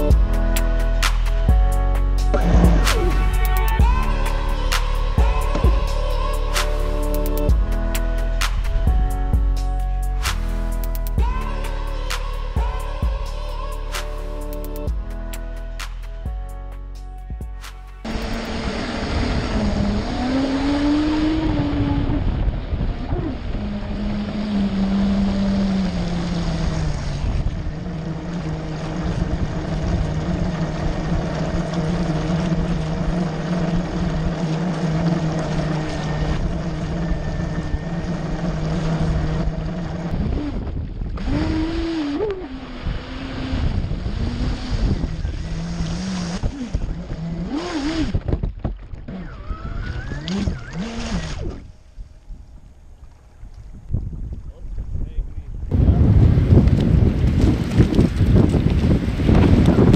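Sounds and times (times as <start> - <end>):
water rushing and splashing: 0.0 - 9.4, 17.6 - 51.8, 55.7 - 59.9
boat motor whining: 0.0 - 54.0.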